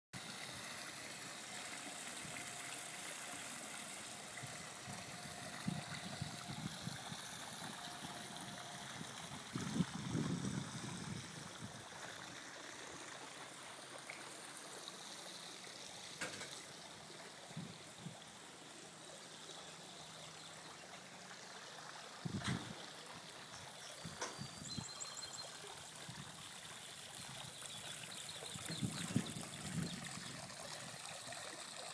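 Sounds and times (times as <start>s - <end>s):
water splashing into pool: 25.4s - 31.9s.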